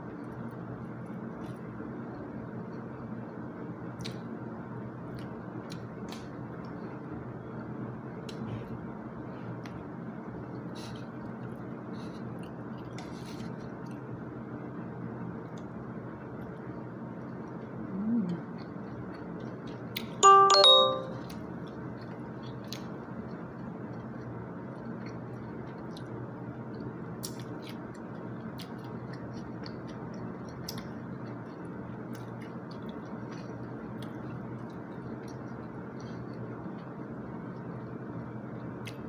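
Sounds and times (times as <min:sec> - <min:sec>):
low room hum: 0:00.0 - 0:39.0
person humming mm: 0:17.9 - 0:18.5
two-note chime: 0:20.2 - 0:21.3.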